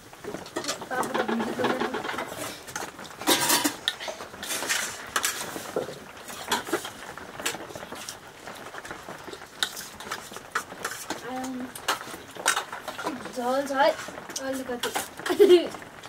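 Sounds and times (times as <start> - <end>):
dishes and utensils clinking: 0.5 - 7.6.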